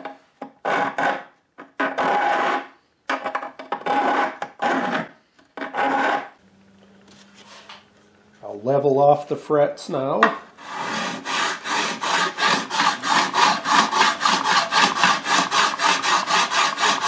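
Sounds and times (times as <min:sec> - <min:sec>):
hand file rasping on metal: 0:00.6 - 0:02.7, 0:03.8 - 0:06.3, 0:10.6 - 0:17.0
faint steady hum: 0:06.4 - 0:10.8.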